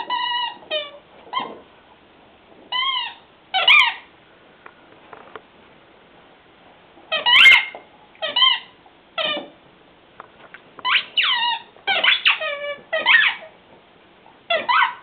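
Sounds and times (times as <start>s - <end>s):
squeaky toy squeaking: 0.0s - 1.6s, 2.7s - 4.1s, 7.1s - 9.5s, 10.8s - 13.5s, 14.5s - 15.0s.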